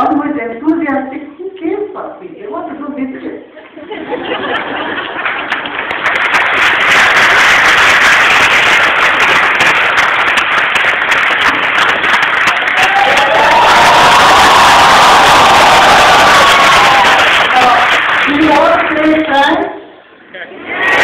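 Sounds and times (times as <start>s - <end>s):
large audience applauding: 4.2s - 19.5s, 20.6s - 21.0s.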